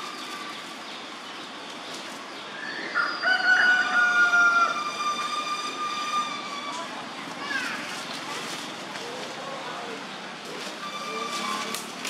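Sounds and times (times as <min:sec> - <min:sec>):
rooster crowing: 0:02.9 - 0:05.1.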